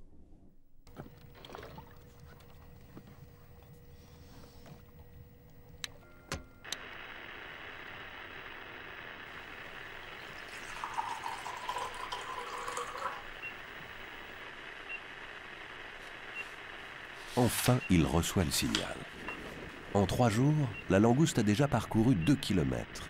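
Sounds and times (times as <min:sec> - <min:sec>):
steady hiss: 0:06.6 - 0:23.0
coffee pouring into mug: 0:09.2 - 0:14.4.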